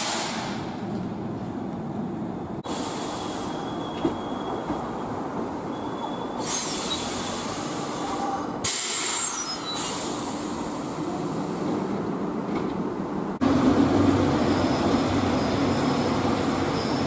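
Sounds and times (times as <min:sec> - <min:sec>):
train air brakes hissing: 0:00.0 - 0:00.7, 0:02.6 - 0:04.7, 0:06.0 - 0:11.7.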